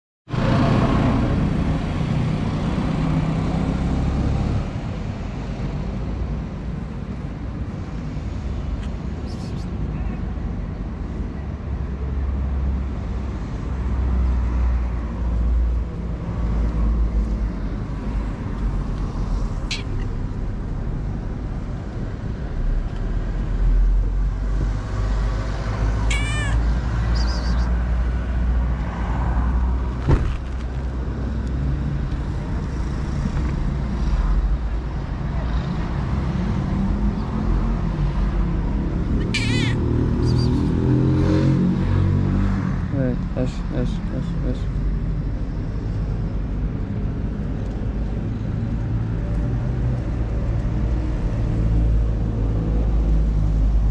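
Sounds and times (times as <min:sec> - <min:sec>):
cat meowing: 0:25.9 - 0:27.8, 0:39.2 - 0:40.5.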